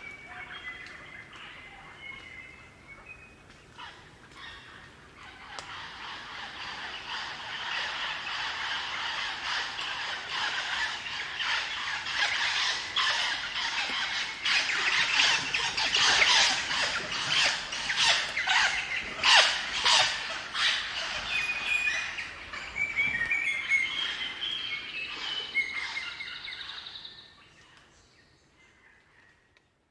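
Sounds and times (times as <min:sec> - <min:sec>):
whistled bird song notes: 0:21.3 - 0:27.3.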